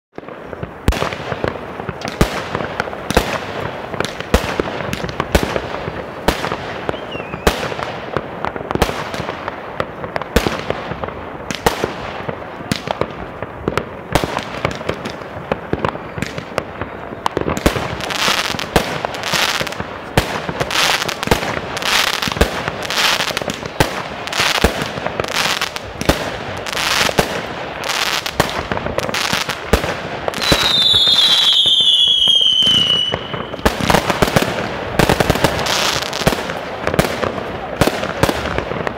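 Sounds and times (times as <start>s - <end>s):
firework bangs: 0.2s - 38.9s
firework crackle: 0.2s - 38.9s
falling firework whistle: 6.7s - 7.7s, 30.3s - 34.0s.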